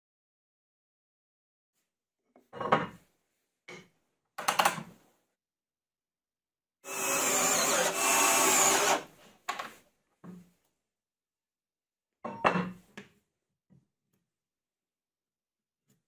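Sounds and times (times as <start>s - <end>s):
power drill driving a screw: 6.8s - 9.1s.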